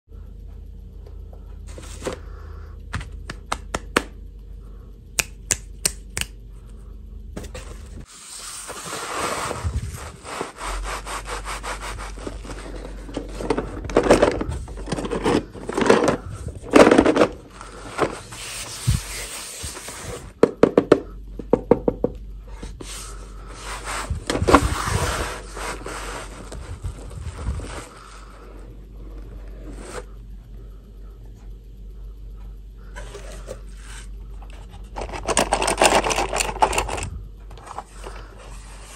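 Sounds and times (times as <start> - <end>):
sharp taps and clicks: 2.9 - 4.2, 5.2 - 6.4
cardboard rubbing and scraping: 7.4 - 13.8, 14.4 - 20.3, 22.8 - 28.1, 29.4 - 30.1.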